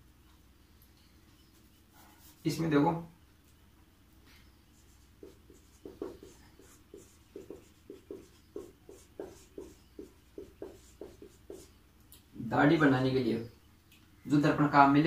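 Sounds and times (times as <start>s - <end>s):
marker pen writing on whiteboard: 4.8s - 11.8s.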